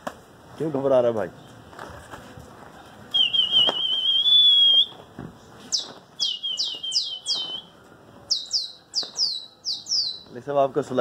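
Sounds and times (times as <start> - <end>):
songbird whistling and chirping: 3.1 - 10.4.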